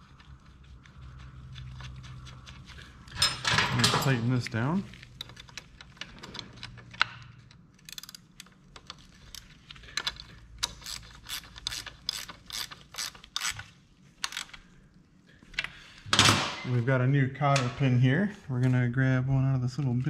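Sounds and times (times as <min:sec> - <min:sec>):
ratchet wrench clicking: 0:07.8 - 0:09.4, 0:10.0 - 0:13.6, 0:14.2 - 0:14.6.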